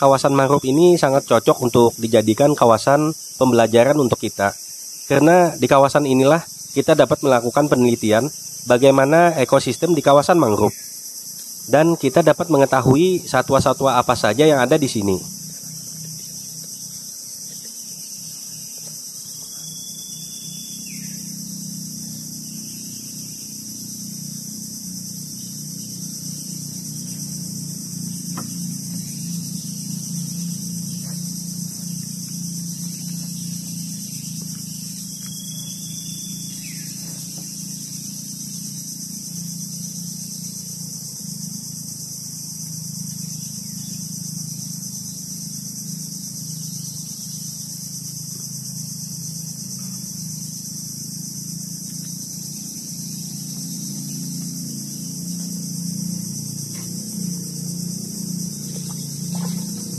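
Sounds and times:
high-pitched insect chorus: 0.0 - 59.9
low steady drone: 11.7 - 42.1, 49.1 - 59.9.

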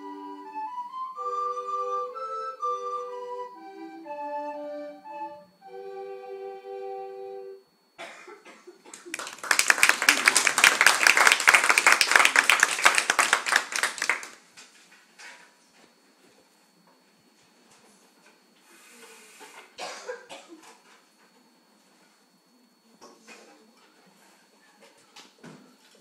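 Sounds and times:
recorder ensemble playing: 0.0 - 7.6
applause: 8.9 - 14.5.

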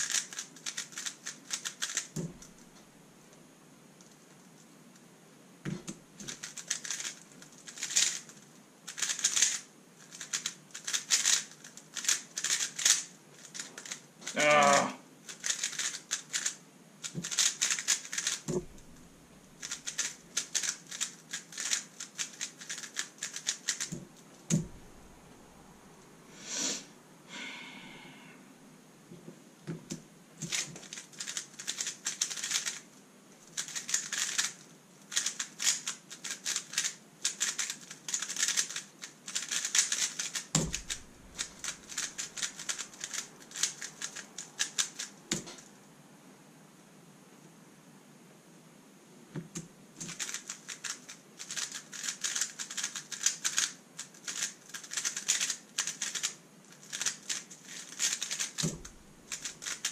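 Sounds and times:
puzzle cube clicking: 0.0 - 2.6, 5.7 - 14.4, 15.3 - 18.7, 19.6 - 24.8, 29.8 - 32.8, 33.5 - 45.7, 49.4 - 59.9
low thumps: 18.5 - 19.1, 24.0 - 25.2.

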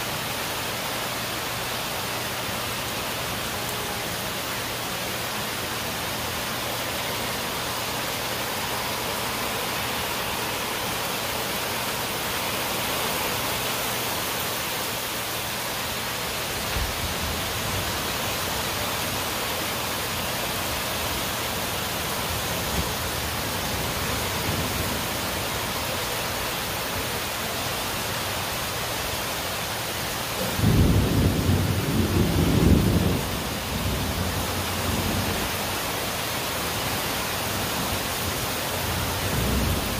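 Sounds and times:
heavy rain falling: 0.0 - 39.9
low rumble of thunder: 30.4 - 35.5.

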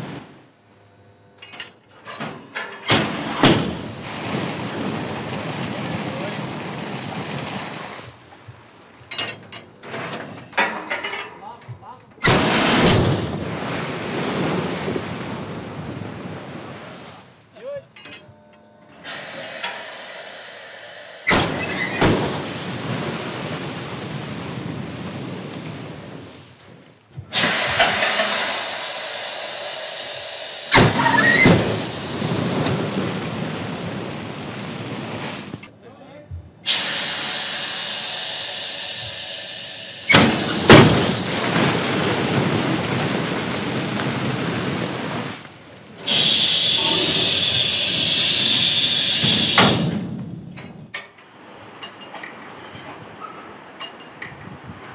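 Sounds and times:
compressed air hiss: 19.0 - 22.9, 27.3 - 33.2, 36.6 - 42.0, 46.1 - 50.0
coal pouring into a pit: 36.7 - 45.4.

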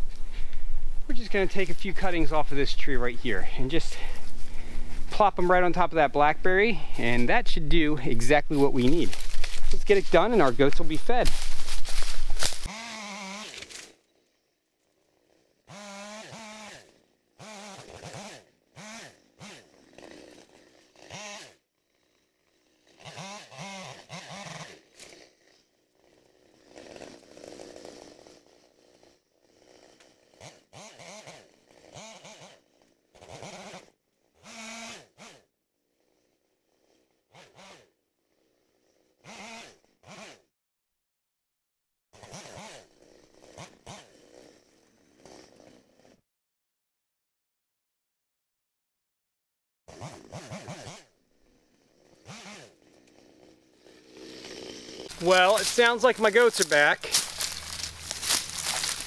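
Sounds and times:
chainsaw running: 0.0 - 40.5, 42.2 - 46.2, 49.9 - 59.0.

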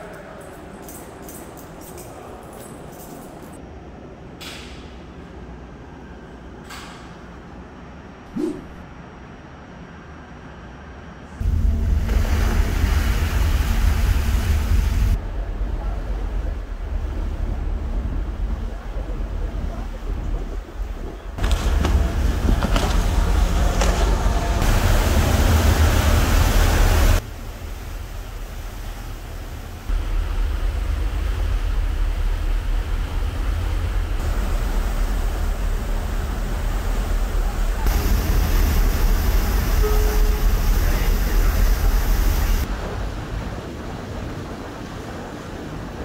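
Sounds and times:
boat wake rushing water: 11.4 - 46.0
heavy low rumble: 11.4 - 46.0
short steady tone: 39.6 - 41.6.

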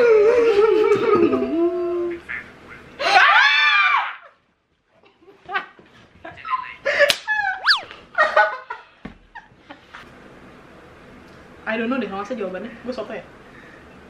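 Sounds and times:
sharp hand clap: 7.1 - 7.3
laughter and squeals: 7.3 - 8.0
group screaming excitedly: 7.6 - 7.9.

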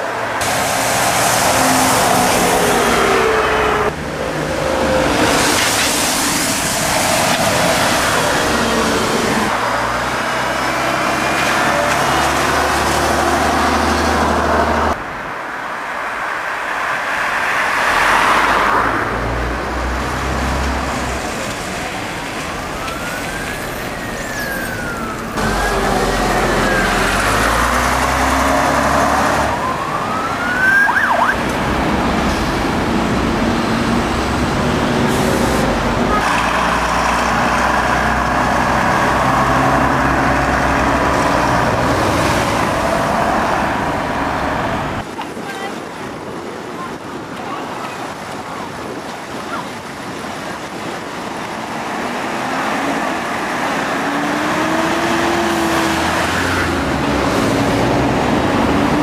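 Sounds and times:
diesel buses pulling away: 0.0 - 15.0, 17.8 - 45.0, 49.8 - 59.0
city traffic: 0.0 - 59.0
siren wailing: 1.5 - 5.5, 22.6 - 27.6, 29.1 - 31.4.

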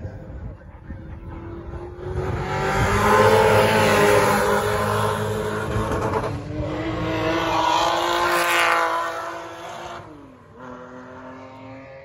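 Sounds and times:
race car engines at high revs: 0.4 - 12.0.

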